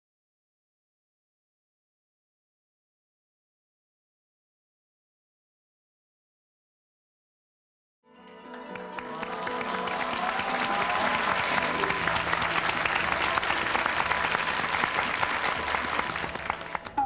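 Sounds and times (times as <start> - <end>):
sustained musical tones: 8.1 - 17.0
applause: 8.2 - 17.0.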